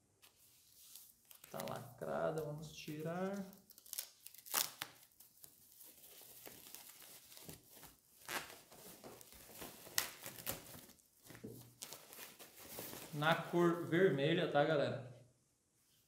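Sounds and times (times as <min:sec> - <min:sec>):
plastic bag tearing and crinkling: 0:02.8 - 0:13.4.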